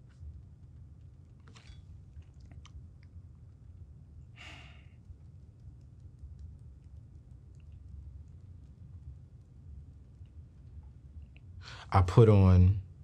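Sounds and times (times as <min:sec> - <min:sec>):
low hum: 0:00.0 - 0:13.0
person breathing in: 0:04.4 - 0:05.0, 0:11.6 - 0:11.9.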